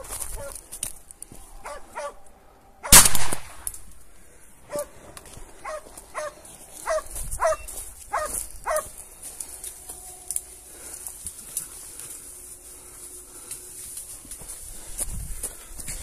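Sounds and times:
dog barking: 0:01.6 - 0:02.2, 0:04.7 - 0:05.0, 0:05.6 - 0:09.0
loud gunshot: 0:02.9 - 0:03.7.

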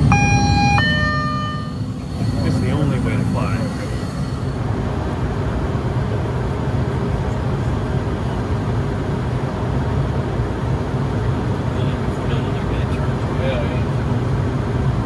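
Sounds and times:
jet cabin rush: 0:00.0 - 0:08.8
low hum: 0:00.0 - 0:09.6.

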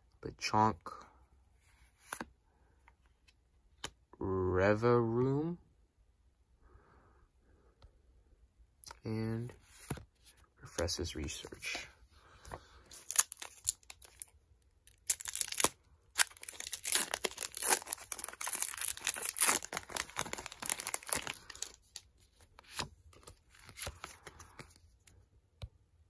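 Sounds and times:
foil wrapper crinkling: 0:13.0 - 0:14.3, 0:14.9 - 0:22.1.

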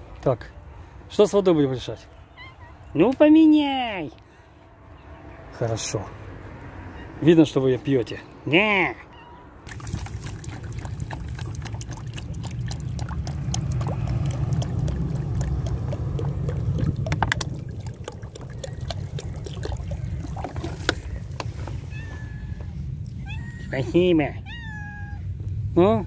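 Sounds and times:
water glugging from bottle: 0:09.7 - 0:21.4.

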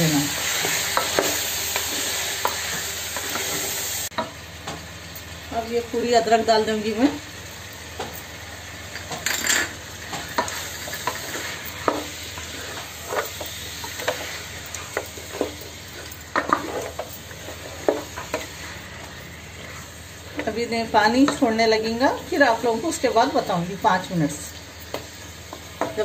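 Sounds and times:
chicken sizzling in oil: 0:00.0 - 0:26.0
wooden spoon scraping a pot: 0:10.4 - 0:18.9.

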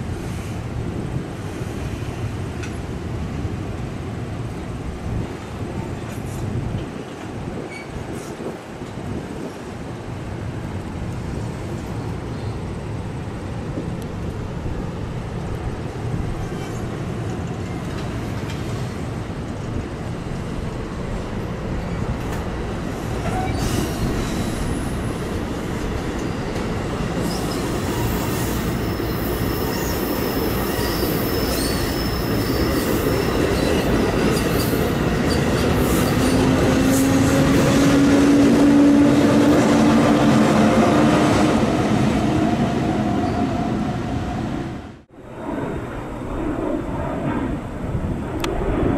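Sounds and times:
train wheels rumbling and clacking: 0:15.2 - 0:44.0
wheel squeals: 0:27.2 - 0:33.8.

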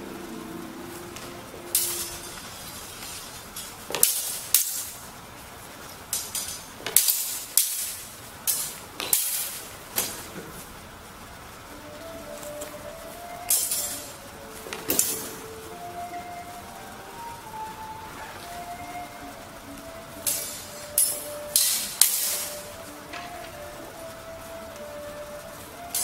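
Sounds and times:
swords clashing: 0:01.7 - 0:05.0, 0:06.2 - 0:10.2, 0:13.5 - 0:15.4, 0:20.2 - 0:22.7.

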